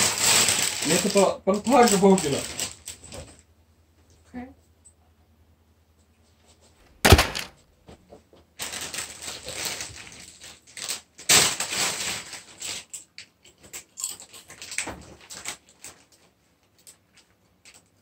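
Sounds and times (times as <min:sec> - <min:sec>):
crisp packet crinkling: 0:00.0 - 0:03.4, 0:08.6 - 0:16.1
heavy thump: 0:07.0 - 0:07.5.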